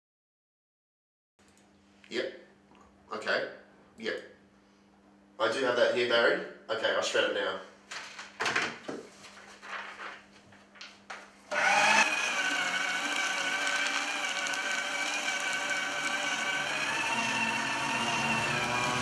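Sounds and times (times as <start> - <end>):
paper rustling: 7.8 - 11.4
paper shredder motor whining: 11.5 - 19.0.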